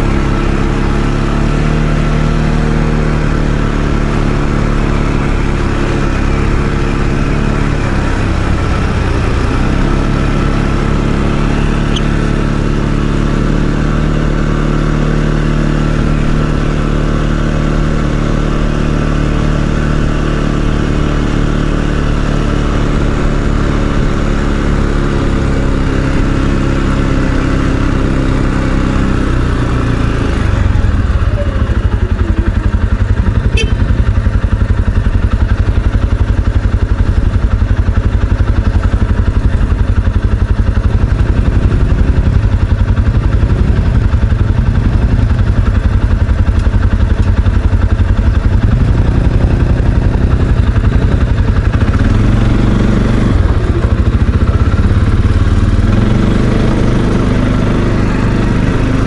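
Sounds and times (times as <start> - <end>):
atv engine running: 0.0 - 59.0.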